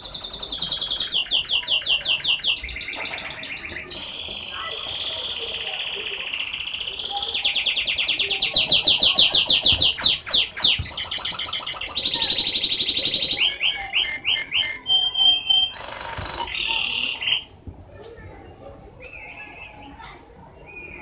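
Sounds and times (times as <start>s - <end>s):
canary singing trills: 0.0s - 17.6s, 19.0s - 21.0s.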